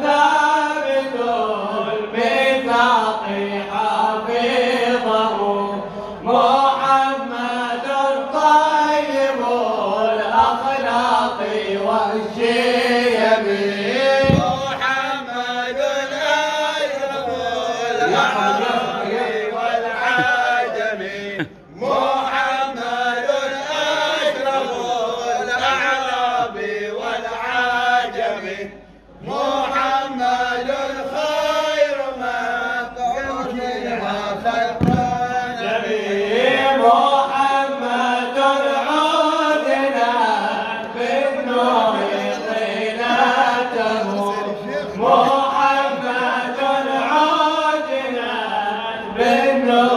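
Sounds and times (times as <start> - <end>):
men chanting: 0.0 - 49.9
low thump: 14.2 - 14.8, 34.8 - 35.4.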